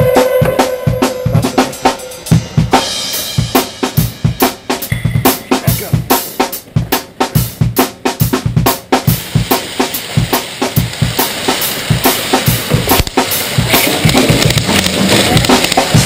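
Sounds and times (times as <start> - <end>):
fast drum kit beat: 0.0 - 16.0.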